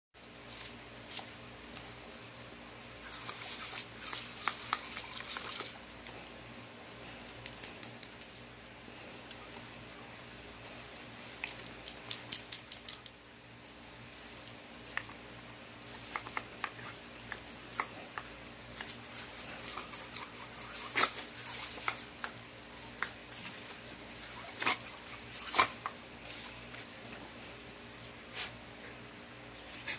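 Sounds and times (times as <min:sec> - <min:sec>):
sprinkler spraying on grass: 0:03.0 - 0:05.8, 0:14.2 - 0:26.8.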